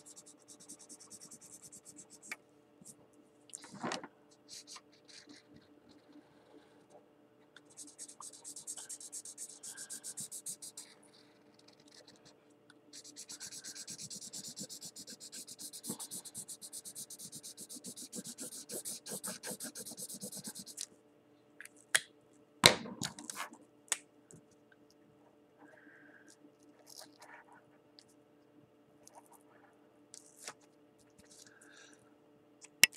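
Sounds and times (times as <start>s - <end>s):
marker scribbling on paper: 0.0s - 2.4s, 4.5s - 5.6s, 7.7s - 12.3s, 12.9s - 20.8s.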